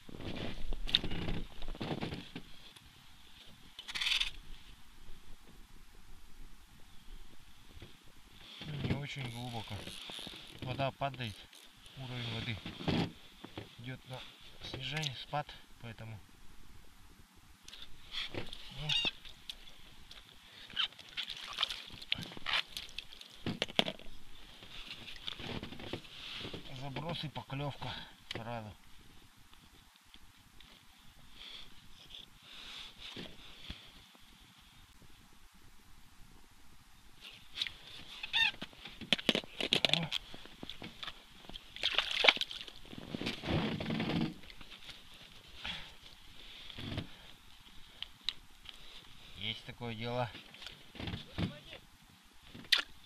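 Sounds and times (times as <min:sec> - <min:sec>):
rustling of winter clothing: 0:00.0 - 0:15.2, 0:17.8 - 0:27.9, 0:28.6 - 0:35.4, 0:37.1 - 0:51.8
brief squeak: 0:38.1 - 0:38.6.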